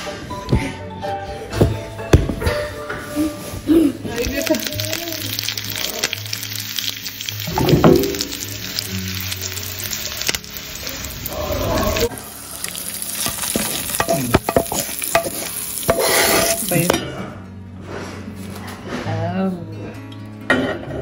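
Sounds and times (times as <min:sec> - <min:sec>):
spices sizzling in hot oil: 0:03.4 - 0:16.9
hot oil poured with hissing sizzle: 0:04.1 - 0:16.9
spoon clicking and scraping in bowl: 0:13.9 - 0:16.7.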